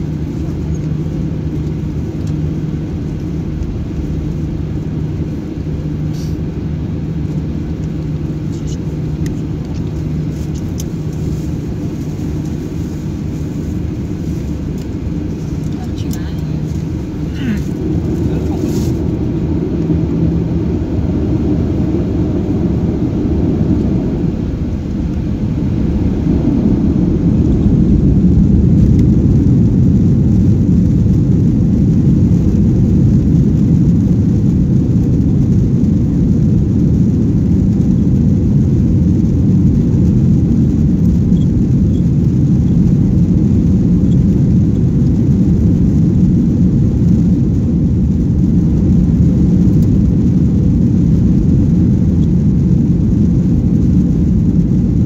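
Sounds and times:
jet engines spooling up: 0.0s - 31.4s
runway rumble: 0.0s - 55.0s.

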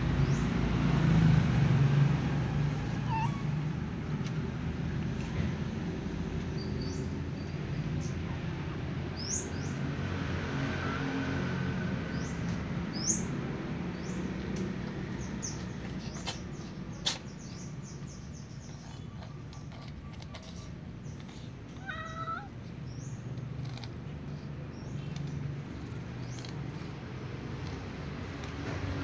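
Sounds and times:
cat meowing: 2.8s - 3.7s, 21.2s - 22.6s.

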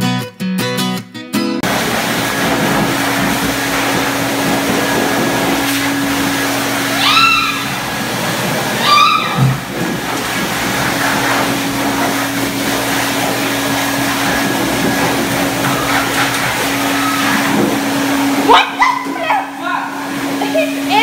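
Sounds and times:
blow dryer blasting: 1.6s - 21.0s
short high cry: 7.0s - 7.8s, 8.8s - 9.4s.

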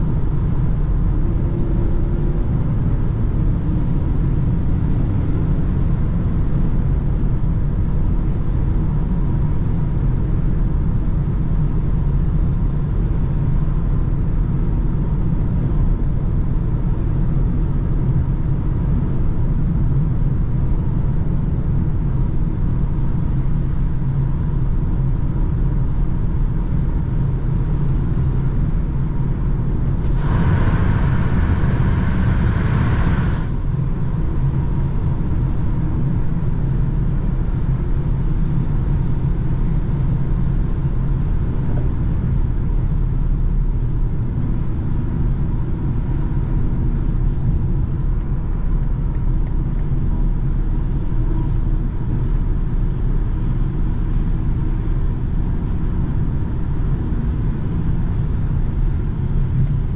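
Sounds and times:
car road and engine rumble: 0.0s - 59.9s
loud rushing hiss: 30.0s - 33.8s.

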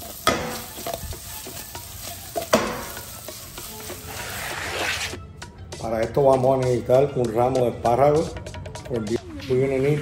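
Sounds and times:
asparagus sizzling in a frying pan: 0.0s - 4.6s.

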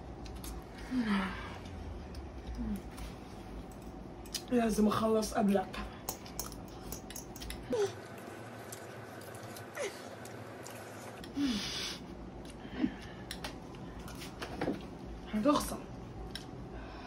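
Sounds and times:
forks clicking against bowls: 6.0s - 7.6s.

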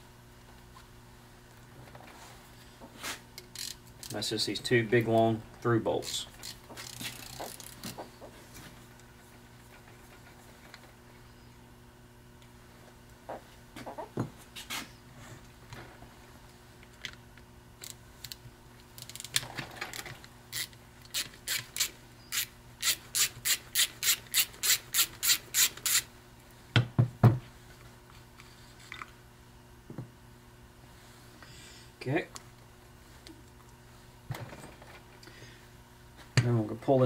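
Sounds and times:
ratchet clicking: 3.4s - 4.2s, 6.0s - 7.9s, 20.5s - 26.1s.

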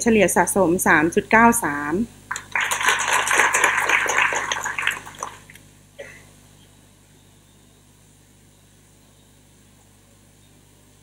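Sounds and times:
faint room hum: 0.0s - 11.0s
audience applause: 2.3s - 5.6s.

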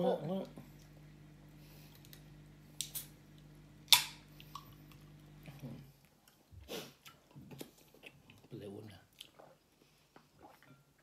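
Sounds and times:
can opening pop and hiss: 2.8s - 3.1s, 3.9s - 4.2s.

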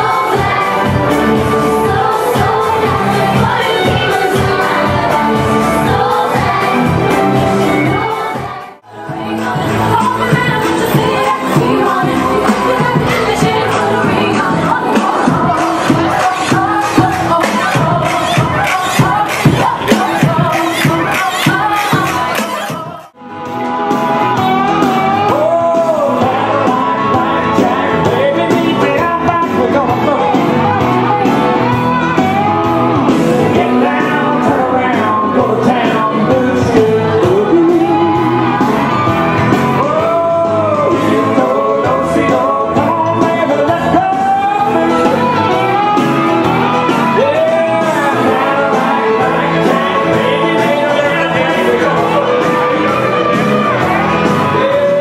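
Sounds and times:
upbeat song with band: 0.0s - 55.0s.

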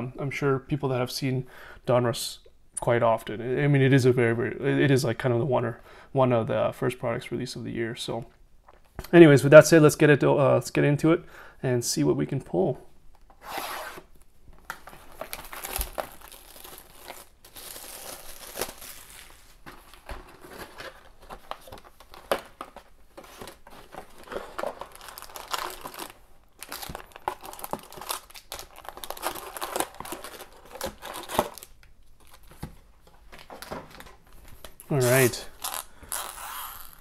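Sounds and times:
foil packs rustling: 14.6s - 32.7s
plastic wrapping crinkling and tearing: 14.6s - 32.7s.

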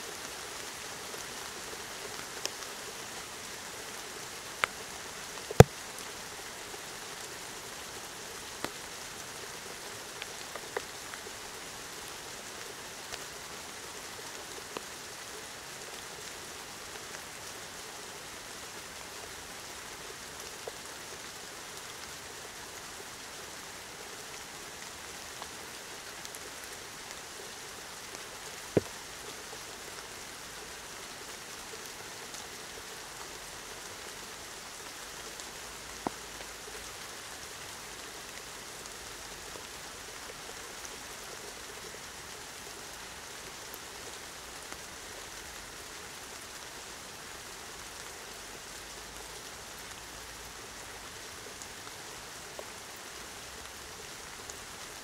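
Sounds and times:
steady rain: 0.0s - 55.0s
sharp taps of raindrops: 5.5s - 5.8s, 28.6s - 29.1s.

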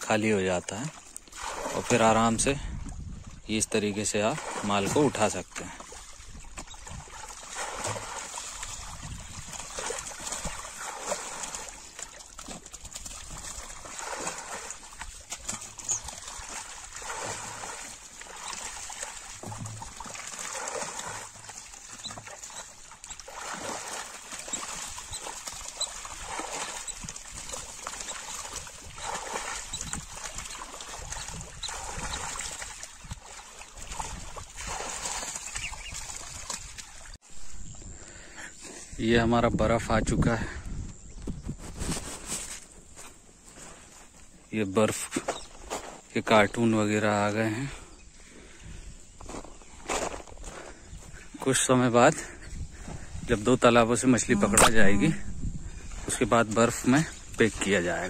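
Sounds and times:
shallow water splashing: 0.2s - 37.2s
fish thrashing in water: 1.0s - 2.1s, 4.2s - 37.2s.

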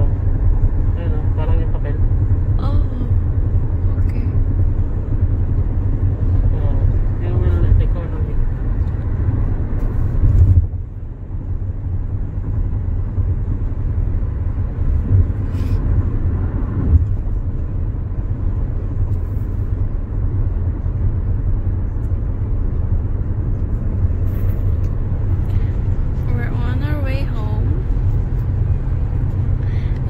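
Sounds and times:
road and tyre noise in cabin: 0.0s - 30.0s.

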